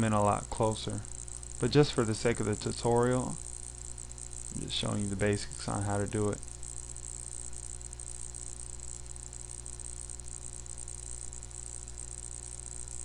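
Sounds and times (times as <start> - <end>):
high-pitched hiss: 0.0 - 6.7
low electrical hum: 0.0 - 13.0.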